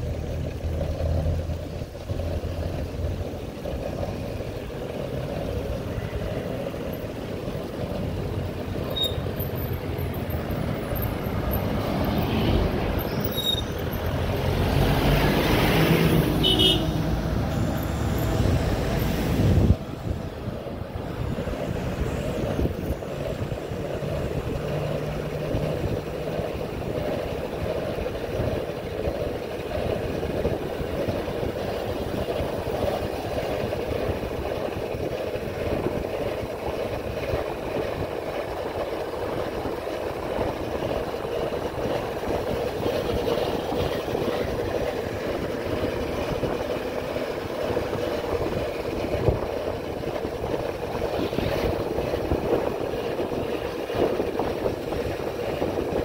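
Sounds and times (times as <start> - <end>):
bike in motion rumbling: 0.0 - 56.0
wind buffeting microphone: 17.1 - 56.0.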